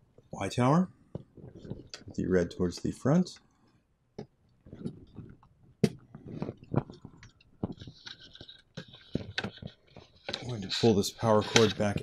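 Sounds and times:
wires rustling: 1.1 - 2.5, 4.5 - 12.0.

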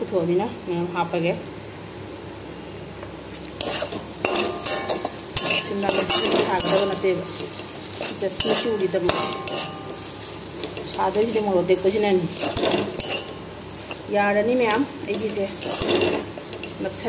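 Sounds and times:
spatula scraping steel pan: 3.6 - 11.4, 12.3 - 14.1, 15.1 - 16.8.

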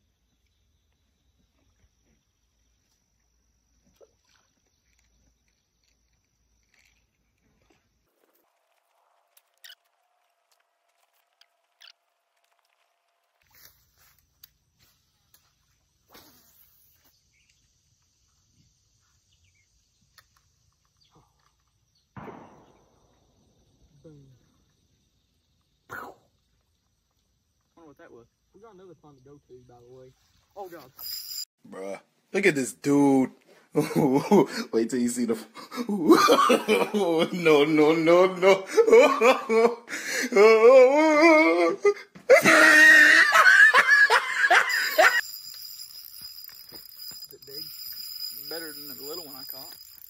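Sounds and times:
high insect trill: 0.0 - 31.5, 32.4 - 41.7, 42.3 - 50.0
faint outdoor ambience: 0.0 - 50.0
small ticks: 0.2 - 22.0, 45.2 - 50.0.

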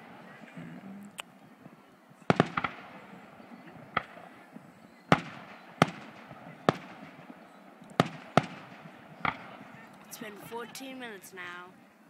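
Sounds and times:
firework shells bursting: 2.3 - 4.4.

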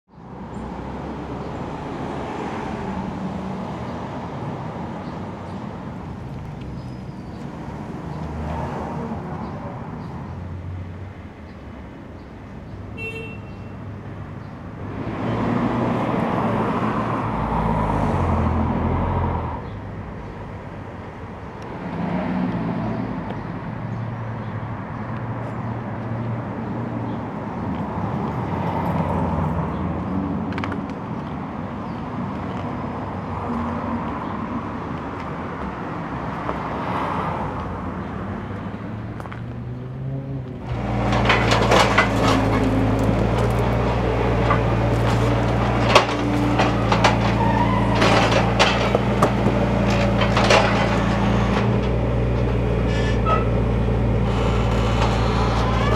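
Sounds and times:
cars passing: 0.1 - 55.9
loader engine running: 40.6 - 55.9
knocks and clatter of concrete: 40.7 - 52.6.

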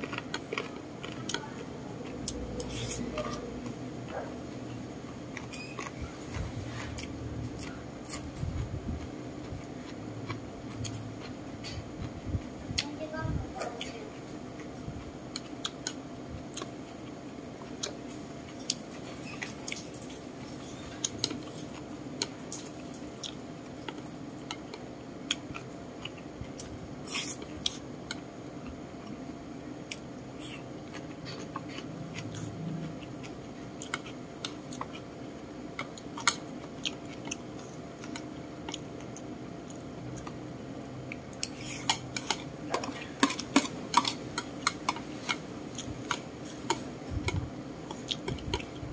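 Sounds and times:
close-up chewing: 0.0 - 12.2, 13.6 - 29.2, 29.8 - 48.9
steady low hum: 0.0 - 48.9.

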